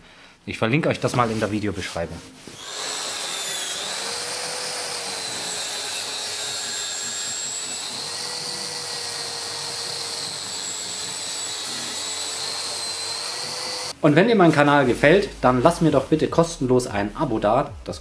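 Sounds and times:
circular saw cutting plywood: 2.6 - 14.0
dust extractor: 2.6 - 14.0.

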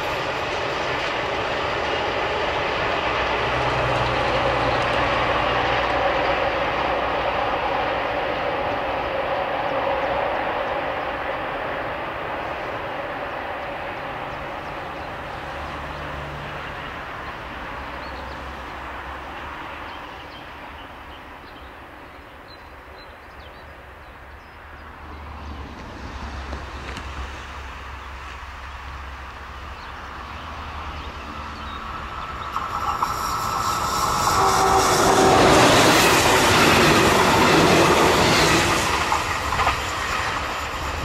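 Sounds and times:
train rolling past: 0.0 - 41.0.

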